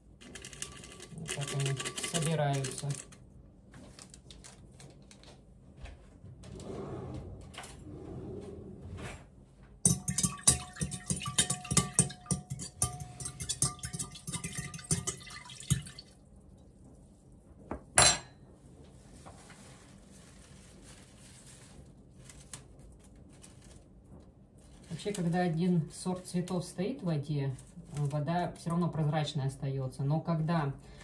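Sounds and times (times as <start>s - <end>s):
metal spoon clinking against glass: 9.9s - 15.9s.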